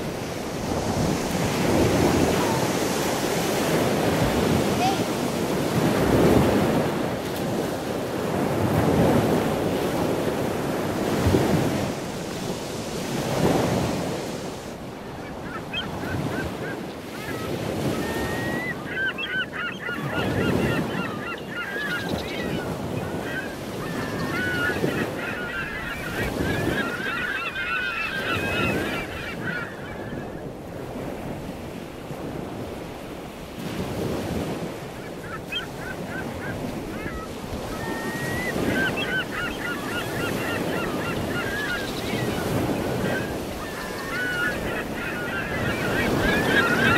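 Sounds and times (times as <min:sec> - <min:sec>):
wind buffeting microphone: 0:00.0 - 0:18.8
ocean surf breaking: 0:00.0 - 0:46.9
wavering bird calls: 0:15.1 - 0:30.5, 0:34.9 - 0:46.9.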